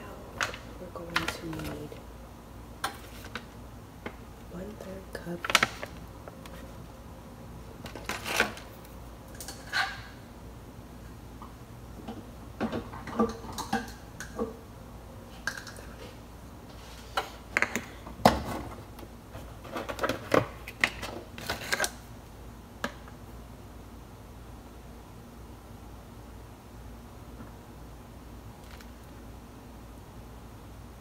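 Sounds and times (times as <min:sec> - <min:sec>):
kitchen things clicking and knocking: 0:12.0 - 0:14.6, 0:17.2 - 0:18.8.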